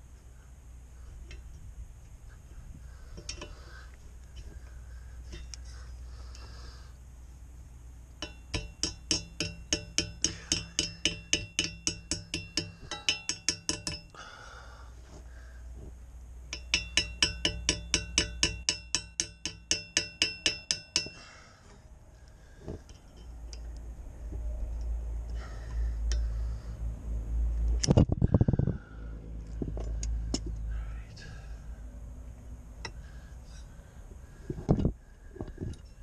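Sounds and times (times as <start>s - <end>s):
pliers tapping on metal: 8.2s - 14.1s, 16.5s - 21.2s
metal propeller ringing: 8.2s - 14.2s, 16.5s - 21.3s.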